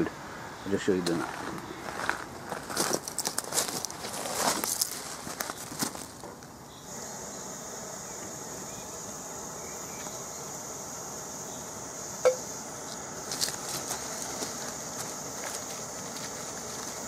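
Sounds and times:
camp stove burner hissing: 3.7s - 17.0s.

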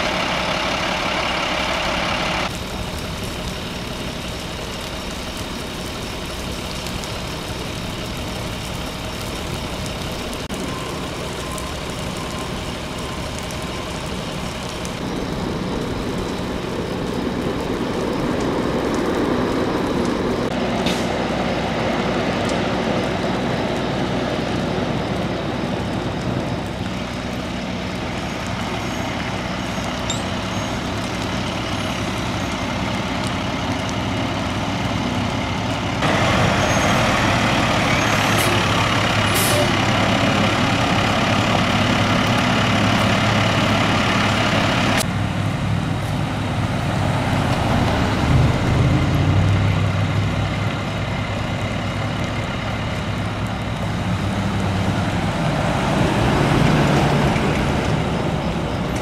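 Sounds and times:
heavy vehicle engine running: 0.0s - 59.0s
loud even hiss: 36.0s - 41.4s.

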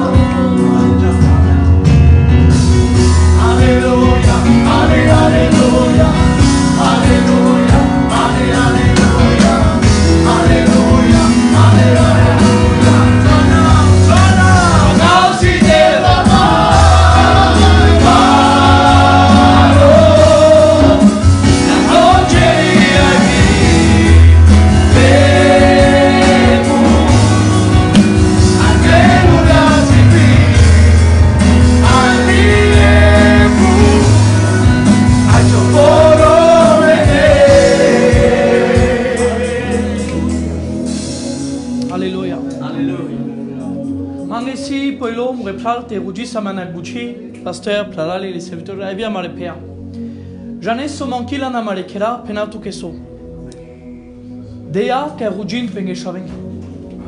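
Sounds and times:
electronic keyboard: 0.0s - 57.0s
men singing gospel song: 2.9s - 40.8s.

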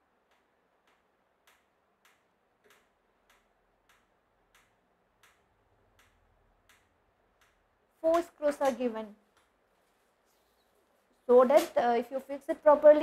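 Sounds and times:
screwdriver ticking: 0.0s - 8.2s.

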